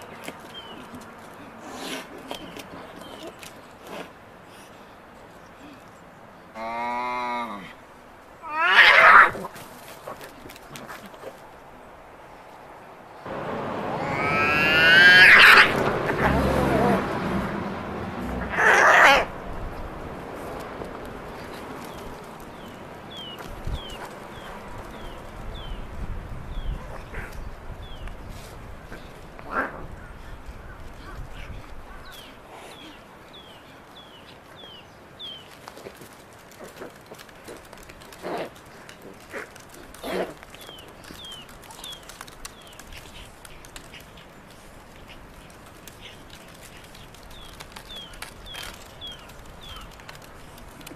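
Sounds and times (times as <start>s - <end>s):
cat screeching: 8.4s - 9.4s, 13.9s - 15.9s, 18.4s - 19.3s
cats fighting: 8.4s - 11.6s, 13.8s - 25.4s, 35.4s - 50.9s
short cat cries: 13.9s - 15.8s.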